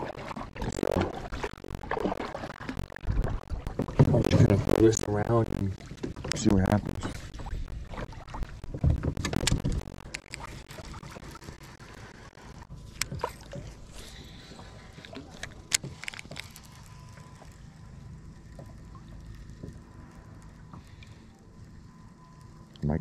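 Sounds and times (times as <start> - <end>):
water sloshing: 0.0 - 17.8.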